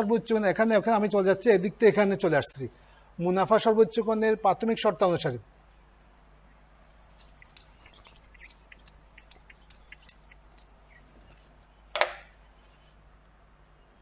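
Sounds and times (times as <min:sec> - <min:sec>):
duster rubbing on whiteboard: 0:07.2 - 0:11.2.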